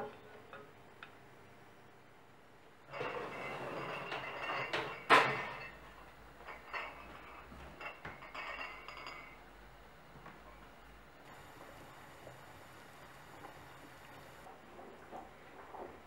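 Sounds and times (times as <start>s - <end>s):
glass jars clinking on metal tray: 2.9s - 9.4s.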